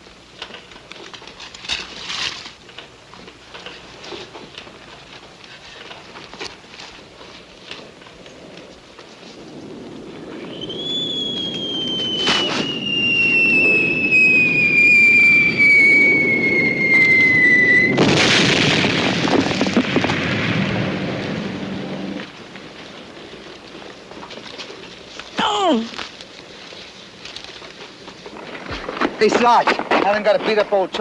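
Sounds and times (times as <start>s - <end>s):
low rumble: 7.0s - 25.3s
loud explosion: 9.6s - 22.7s
incoming shell whistle: 10.4s - 18.1s.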